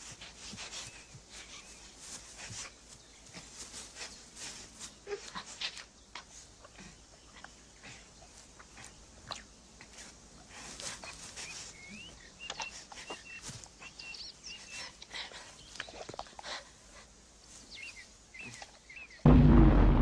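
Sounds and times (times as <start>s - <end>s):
bear chewing and snuffling: 0.0s - 19.0s
bird chirps: 11.4s - 14.9s.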